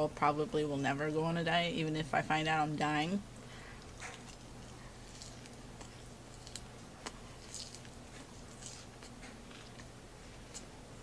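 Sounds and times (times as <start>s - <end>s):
low steady hum: 0.0s - 11.0s
person chewing: 3.8s - 10.8s.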